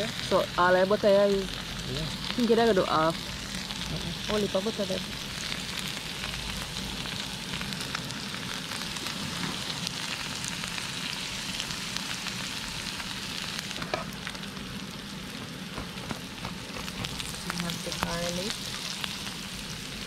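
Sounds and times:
butter sizzling on griddle: 0.0 - 20.0.

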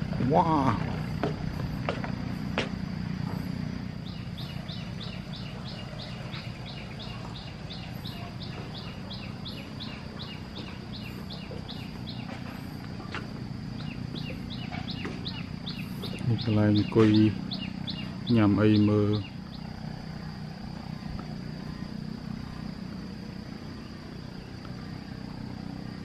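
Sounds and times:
steady low rumble: 0.0 - 26.0
bird chirping: 3.3 - 21.8.

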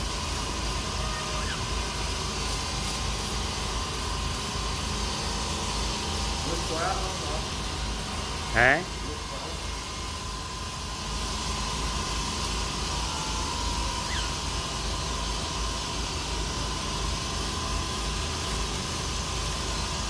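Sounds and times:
cockatiel chirp: 14.0 - 14.4.

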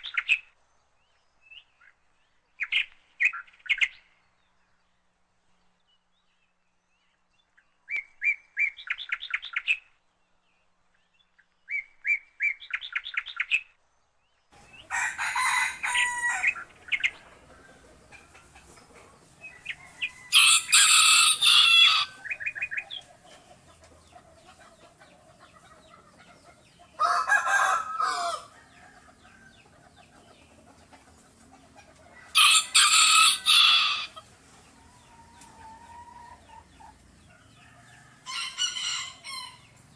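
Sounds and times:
rooster crowing: 14.8 - 16.6, 19.7 - 22.3, 27.0 - 29.5, 32.3 - 34.2, 37.6 - 39.8.

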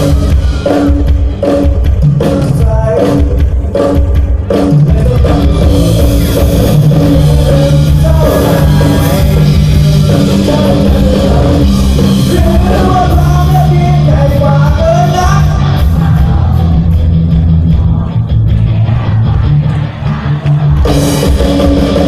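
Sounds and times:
drum kit strokes: 0.0 - 22.0
live rock band playing: 0.0 - 22.0
person singing: 2.2 - 4.0, 4.6 - 17.0.

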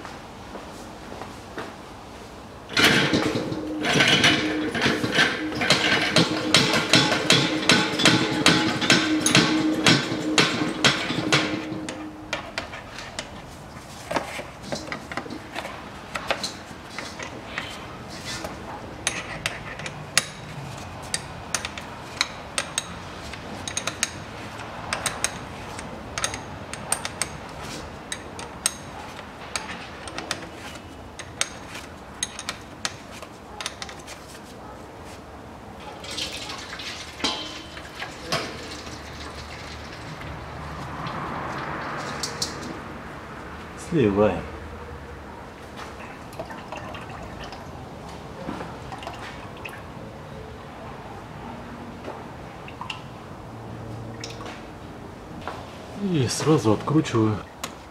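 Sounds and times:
fluid running out: 36.0 - 40.5.

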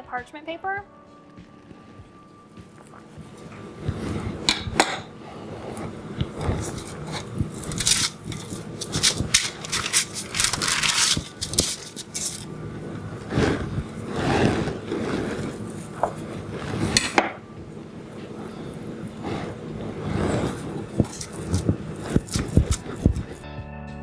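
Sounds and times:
dough scraped onto baking sheet: 3.3 - 17.2, 18.3 - 23.4
knife cutting on wooden board: 3.8 - 12.5, 13.2 - 17.4, 19.2 - 23.4.

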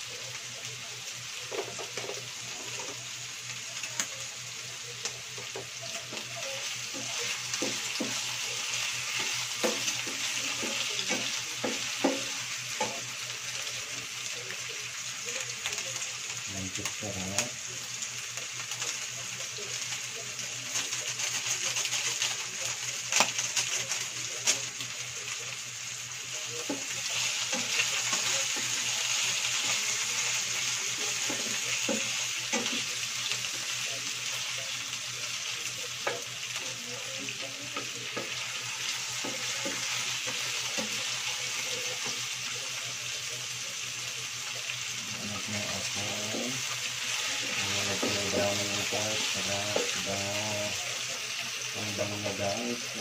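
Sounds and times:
meat sizzling in a frying pan: 0.0 - 53.0.

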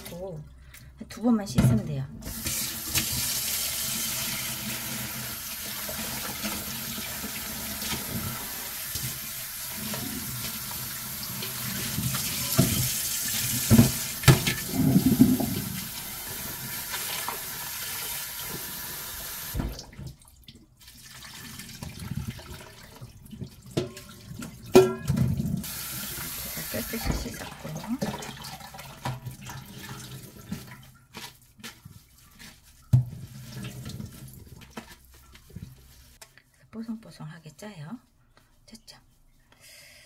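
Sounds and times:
splashing in plastic strainer: 19.6 - 25.5, 26.4 - 36.2.

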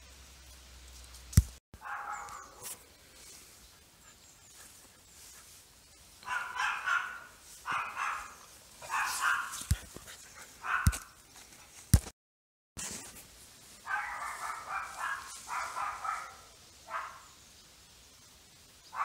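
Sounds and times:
puppy barking: 1.8 - 2.7, 6.2 - 9.9, 10.6 - 11.1, 13.9 - 17.3.

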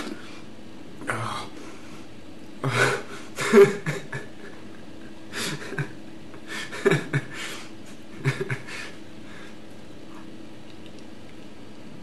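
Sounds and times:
man breathing heavily: 6.4 - 7.8, 8.7 - 9.6.

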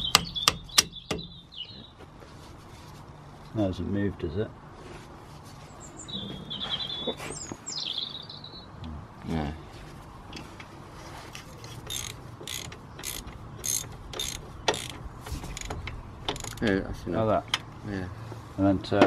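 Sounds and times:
bird trilling: 5.8 - 8.8
ratchet wrench clicking: 11.8 - 16.6.

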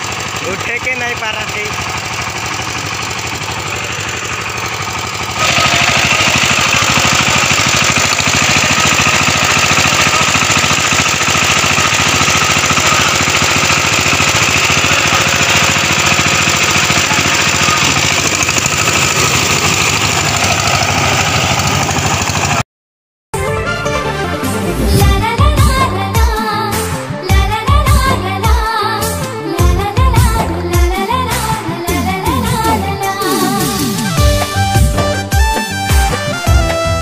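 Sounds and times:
power tiller engine running: 0.0 - 22.6.

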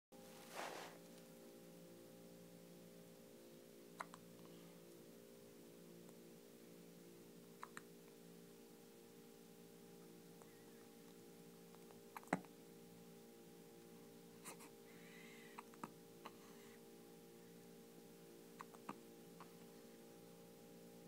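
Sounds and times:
steady low hum: 0.2 - 21.0
baby hiccupping: 4.0 - 4.2, 12.1 - 12.5, 18.6 - 19.6.

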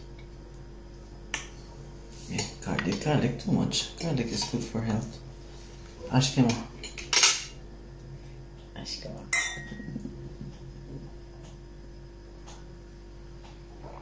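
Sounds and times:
wine glasses clinking: 9.3 - 9.9.

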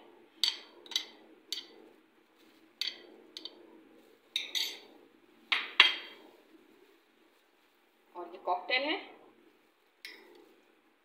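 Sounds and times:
metal spoon clinking against glass: 4.4 - 4.8.

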